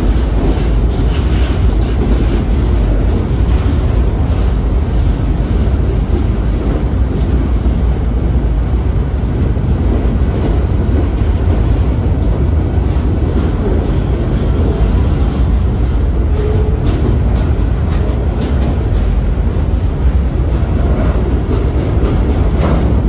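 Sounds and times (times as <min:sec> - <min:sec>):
freight cars rumbling on rails: 0:00.0 - 0:23.0.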